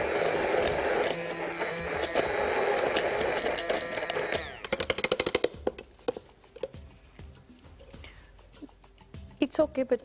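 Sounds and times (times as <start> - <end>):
motor winding down: 0.0 - 4.8
immersion blender running: 0.0 - 5.2.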